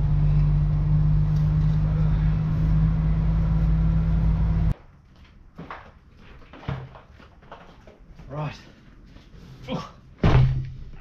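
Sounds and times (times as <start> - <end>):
loud low rumbling drone: 0.0 - 4.7.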